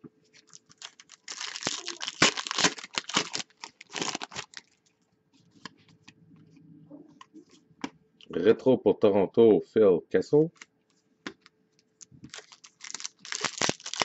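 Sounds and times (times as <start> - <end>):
wrapper tearing and crinkling: 0.4 - 4.8, 12.3 - 14.0.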